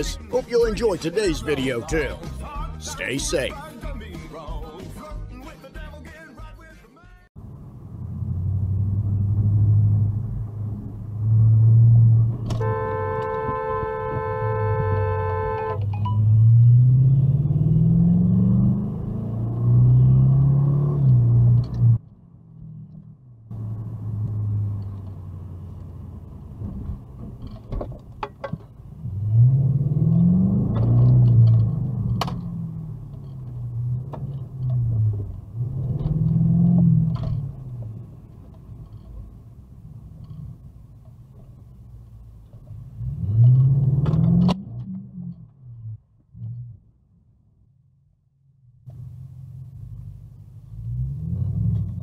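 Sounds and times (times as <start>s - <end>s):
car engine revving: 7.4s - 22.0s, 22.6s - 27.4s, 28.9s - 40.6s, 42.5s - 46.7s, 48.9s - 52.0s.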